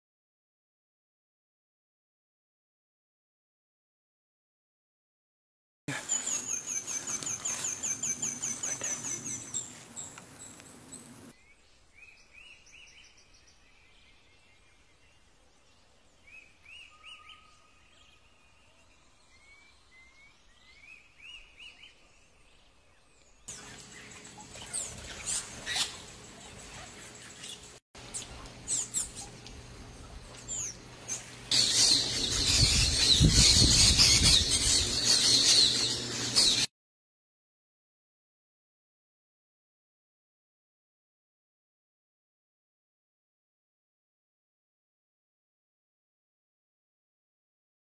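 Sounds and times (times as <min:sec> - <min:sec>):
wild birds calling and singing: 0:05.9 - 0:36.7.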